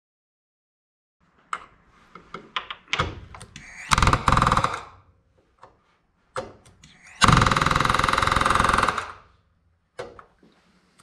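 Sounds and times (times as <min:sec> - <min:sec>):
pneumatic hand tool running: 0:06.9 - 0:09.2.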